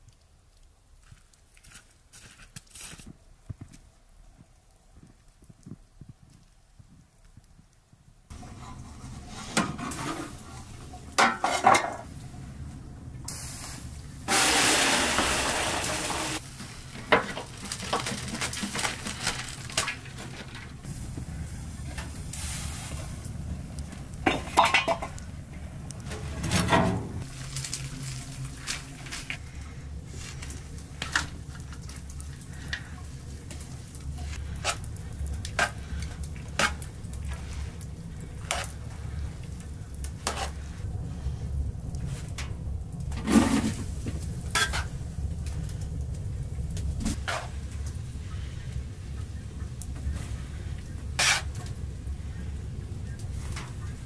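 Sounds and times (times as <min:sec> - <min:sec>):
steady low background noise: 0:03.2 - 0:54.0
utensils and pots clinking: 0:08.3 - 0:12.1, 0:24.2 - 0:25.2.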